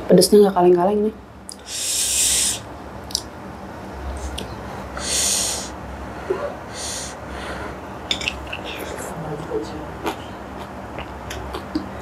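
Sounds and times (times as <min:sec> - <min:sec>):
person drawing hissing breaths: 0:01.6 - 0:02.7, 0:05.0 - 0:07.8.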